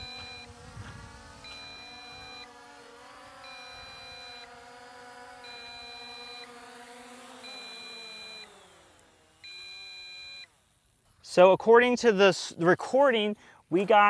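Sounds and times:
two-tone warning beep: 0.0s - 0.5s, 1.4s - 2.5s, 3.4s - 4.5s, 5.4s - 6.5s, 7.4s - 8.5s, 9.4s - 10.5s
drone motors humming: 0.0s - 11.6s.

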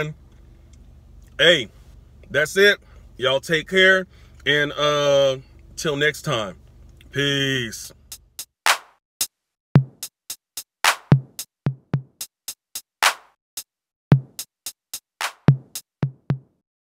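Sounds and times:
drum machine beat: 7.9s - 16.6s.

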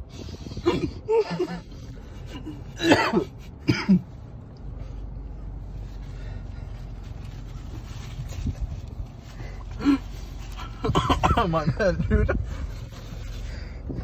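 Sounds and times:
person coughing hard: 2.4s - 4.1s, 10.8s - 11.8s.

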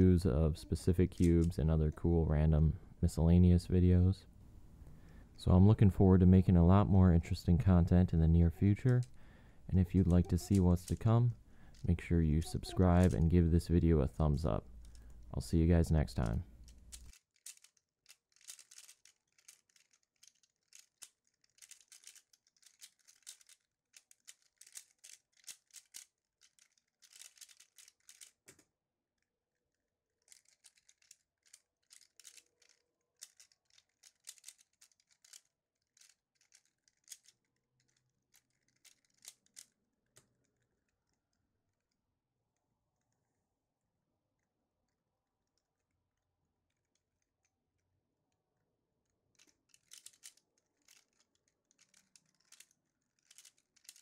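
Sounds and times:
puzzle cube plastic clicks: 0.6s - 2.1s, 7.2s - 42.0s, 49.0s - 54.0s.

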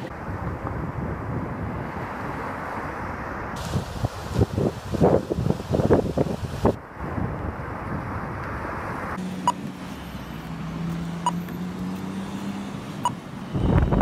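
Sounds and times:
wind: 0.0s - 14.0s
engine drone: 9.1s - 14.0s.

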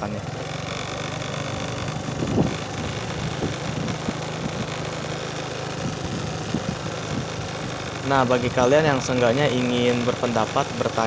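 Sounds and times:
small engine humming: 0.0s - 11.0s.

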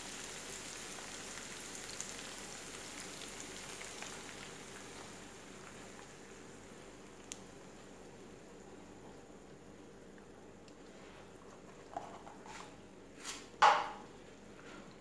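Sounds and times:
food sizzling in oil: 0.0s - 7.3s.

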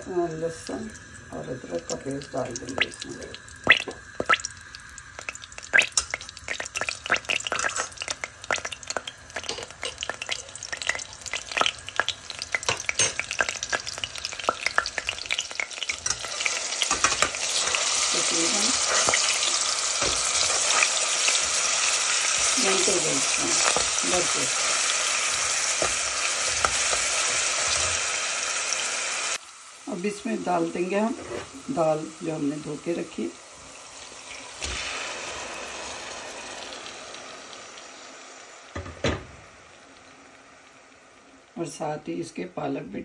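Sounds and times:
oil sizzling loudly: 0.0s - 43.0s
seeds popping in hot oil: 0.3s - 28.3s.

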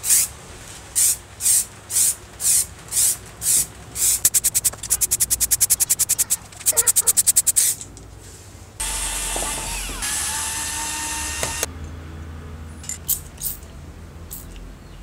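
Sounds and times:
spray paint can hissing: 1.0s - 7.8s.

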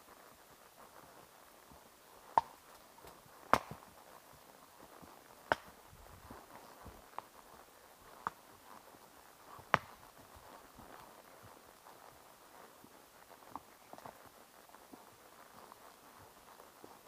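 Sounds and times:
faint background noise: 0.0s - 17.0s
horse hoof strikes: 2.3s - 4.0s, 4.9s - 7.4s, 9.5s - 11.1s.

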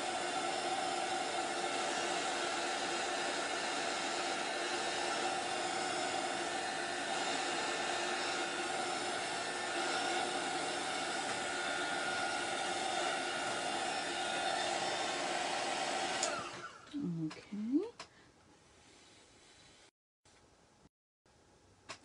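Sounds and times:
heat tool blowing hot air: 0.0s - 16.8s.

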